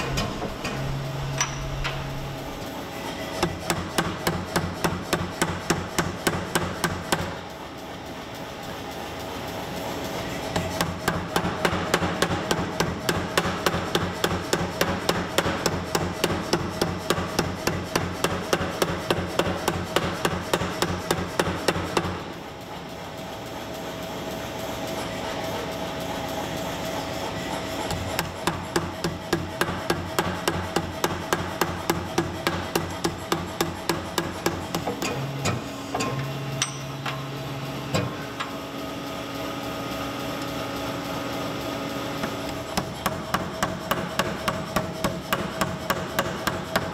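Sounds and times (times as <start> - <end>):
steady machine hum: 0.0 - 46.9
power hammer striking metal: 3.4 - 7.4, 10.5 - 22.2, 27.8 - 38.5, 42.7 - 46.9.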